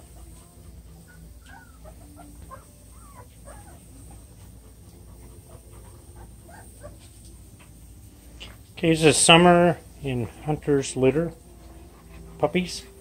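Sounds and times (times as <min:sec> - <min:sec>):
low steady hum: 0:00.0 - 0:13.0
puppies squeaking and whining: 0:00.9 - 0:04.3.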